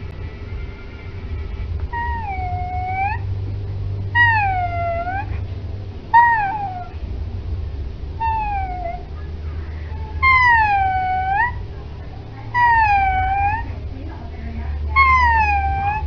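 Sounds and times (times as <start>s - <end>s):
dog howling: 1.9s - 3.3s, 4.1s - 5.4s, 6.1s - 7.0s, 8.2s - 9.2s, 9.9s - 13.9s, 14.9s - 16.0s.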